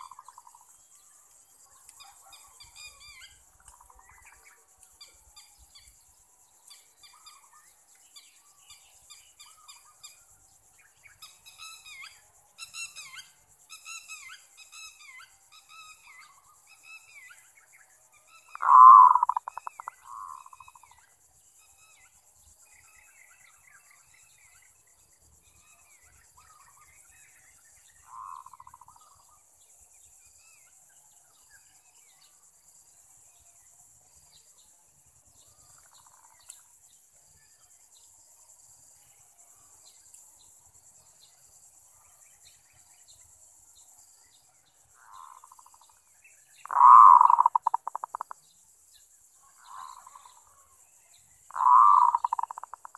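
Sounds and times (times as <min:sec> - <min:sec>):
faint bird chirps: 0:00.0 - 0:32.6, 0:33.3 - 0:38.2, 0:41.2 - 0:52.9
high insect hiss: 0:00.0 - 0:52.9
dove cooing trill: 0:18.6 - 0:20.7, 0:46.7 - 0:48.3, 0:51.5 - 0:52.9.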